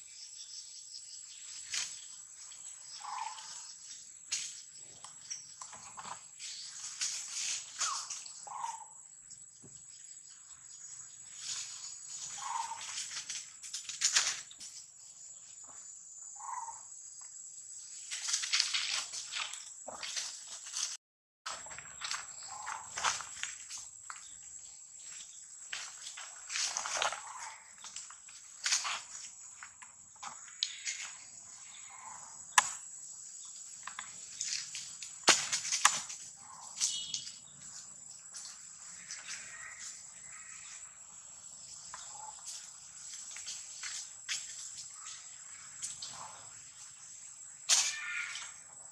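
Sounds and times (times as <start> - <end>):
insects droning: 0.0 - 20.9, 21.5 - 48.9
high insect drone: 35.8 - 48.9.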